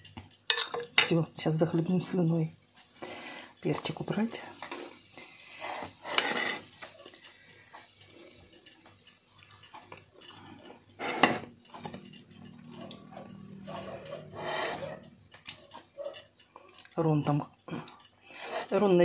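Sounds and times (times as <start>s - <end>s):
fork scraping on ceramic plate: 5.6s - 6.7s, 10.7s - 12.1s, 12.7s - 16.3s, 18.4s - 18.8s.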